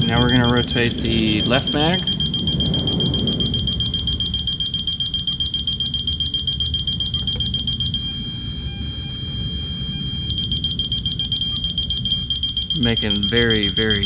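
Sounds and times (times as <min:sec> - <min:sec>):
high-pitched electronic tone: 0:00.0 - 0:14.0.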